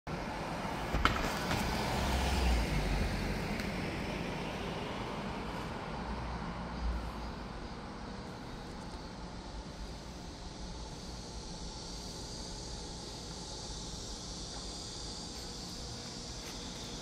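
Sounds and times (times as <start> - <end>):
passing vehicles hiss: 0.1 - 17.0
vehicle rumble passing by: 0.3 - 7.6.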